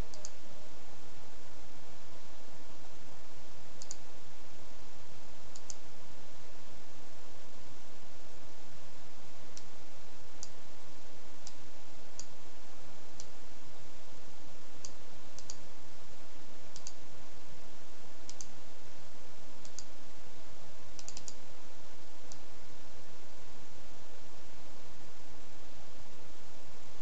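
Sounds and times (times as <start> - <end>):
mouse buttons clicking: 0.0 - 0.4, 3.8 - 4.0, 5.5 - 5.8, 14.8 - 15.6, 16.8 - 17.0, 18.3 - 18.5, 19.6 - 19.9, 21.0 - 21.4.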